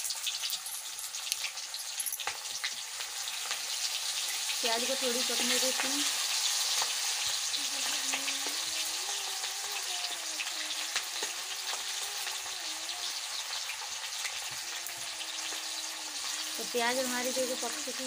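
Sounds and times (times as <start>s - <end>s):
onion sizzling in hot oil: 0.0s - 18.0s.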